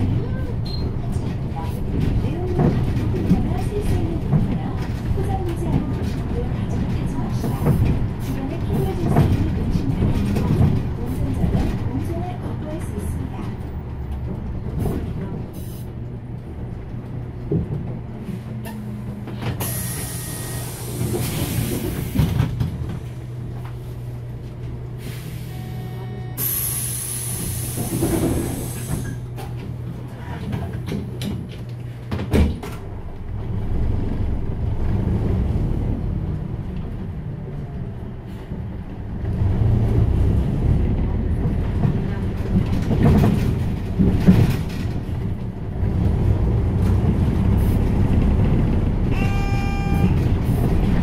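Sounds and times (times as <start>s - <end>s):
bus engine: 0.0s - 51.0s
compressed air hissing: 26.4s - 29.1s.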